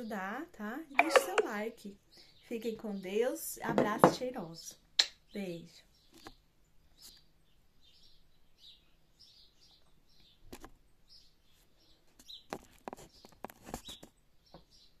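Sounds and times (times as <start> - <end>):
sharp clicks and knocks: 1.0 - 1.5
faint bird chirping: 4.4 - 15.0.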